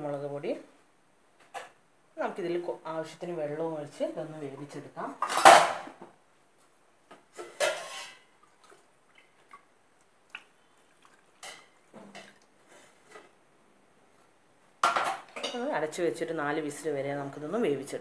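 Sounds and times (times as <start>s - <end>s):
kitchenware clatter: 5.2s - 6.1s, 7.3s - 8.3s, 14.8s - 15.7s
water splashing: 8.3s - 12.5s.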